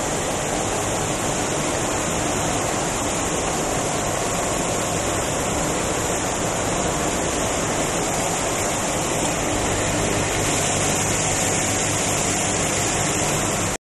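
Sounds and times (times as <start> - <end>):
steady rushing hiss: 0.0 - 13.8.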